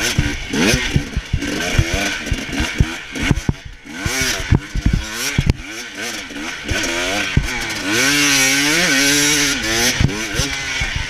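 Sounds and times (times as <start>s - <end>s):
bike knocking on bumps: 0.0s - 5.8s, 6.7s - 7.6s
dirt bike engine revving: 0.0s - 11.0s.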